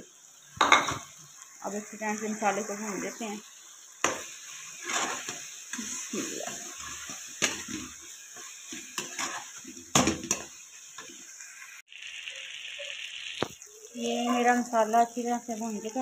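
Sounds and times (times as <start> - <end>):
masala sizzling in pan: 0.0 - 16.0
metal spoon scraping pan: 4.0 - 11.1.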